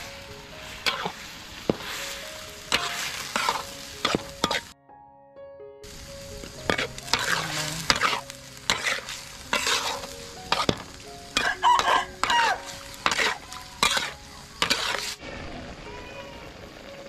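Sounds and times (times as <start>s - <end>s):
food sizzling: 0.0s - 4.8s, 5.8s - 17.0s
metal spatula scraping wok: 0.0s - 4.8s, 6.6s - 15.2s.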